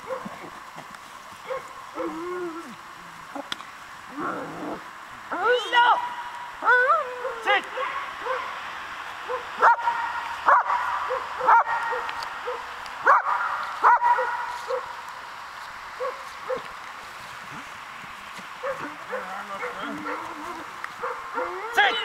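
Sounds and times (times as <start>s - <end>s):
dog barking: 0.0s - 0.3s, 1.4s - 2.2s, 7.2s - 8.6s, 9.3s - 14.9s, 16.0s - 16.7s, 18.6s - 20.4s, 21.0s - 21.7s.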